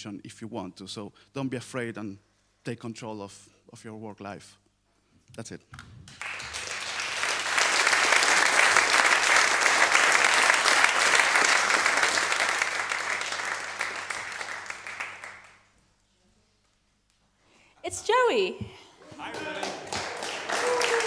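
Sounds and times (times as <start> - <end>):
audience applauding: 6.0 - 15.8, 19.0 - 21.0.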